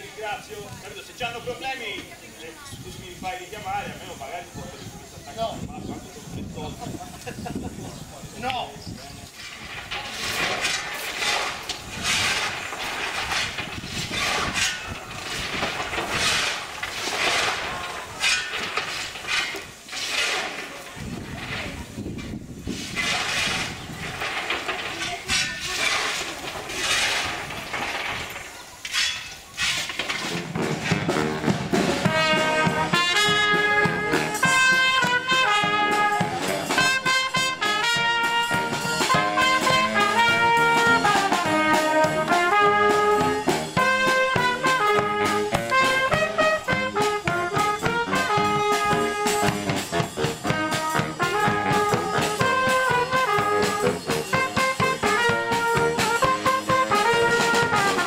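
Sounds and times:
snare drum: 30.2s - 58.0s
trumpets playing a tune: 30.4s - 58.0s
bass drum: 30.5s - 58.0s.

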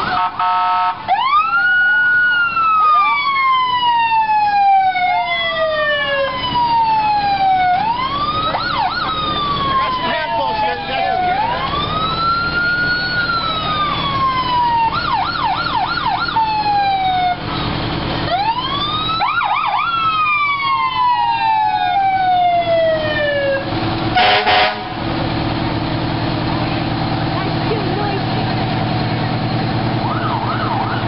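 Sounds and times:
fire engine siren wailing: 0.0s - 31.0s
truck engines running: 0.0s - 31.0s
loud horn blast: 0.1s - 1.0s, 24.2s - 25.0s.

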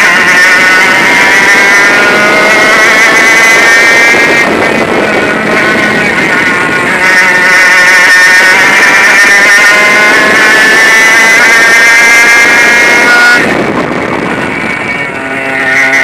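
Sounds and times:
kart engine buzzing: 0.0s - 16.0s.

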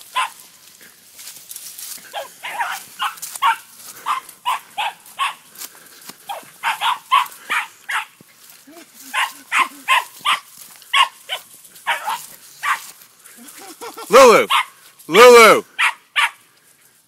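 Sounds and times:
dog yapping: 0.1s - 0.4s, 2.1s - 5.4s, 6.3s - 8.1s, 9.1s - 12.8s, 14.5s - 14.8s, 15.8s - 16.4s.

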